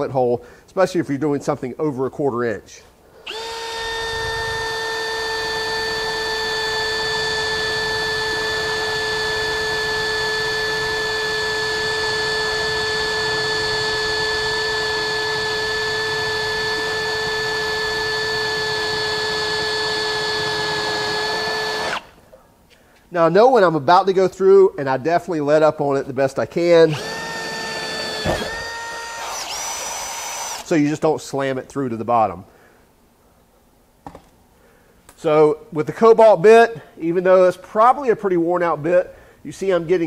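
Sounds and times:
cordless drill whining through steel: 3.2 - 22.2, 26.9 - 30.8.

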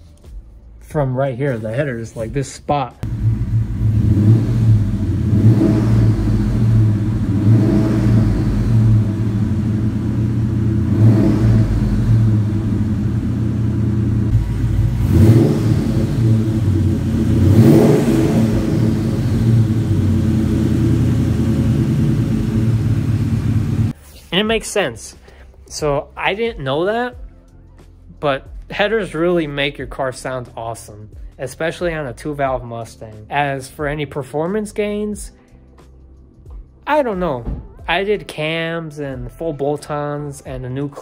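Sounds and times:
car engine idling and revving: 3.0 - 24.0.

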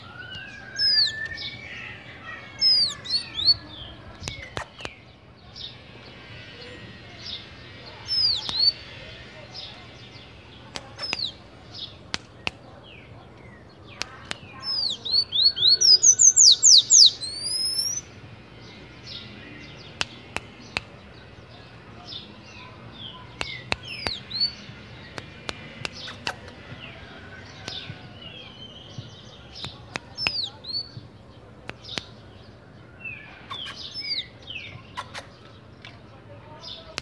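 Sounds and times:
bird squeaky calls: 0.0 - 3.7, 14.6 - 18.1
bird chirps: 0.0 - 35.9
sharp clicks: 8.1 - 8.8, 10.7 - 11.4, 13.4 - 14.9, 23.3 - 26.9, 29.5 - 31.0, 31.6 - 32.2.

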